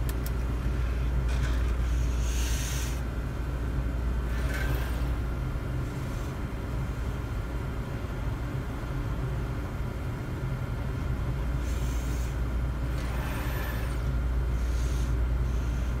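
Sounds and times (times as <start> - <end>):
robot arm whirring: 4.3 - 5.2, 12.9 - 14.1.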